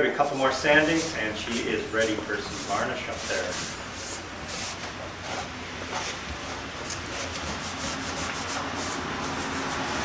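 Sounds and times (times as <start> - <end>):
cloth rubbing on wood: 0.2 - 4.7.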